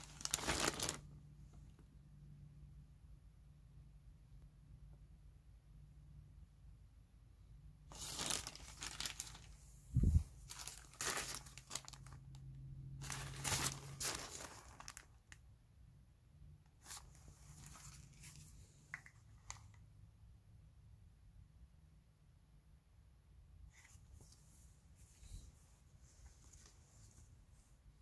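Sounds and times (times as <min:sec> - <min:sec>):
rustling and crinkling: 0:00.0 - 0:01.8, 0:07.9 - 0:12.4, 0:13.0 - 0:15.4, 0:16.7 - 0:19.8, 0:23.7 - 0:28.0.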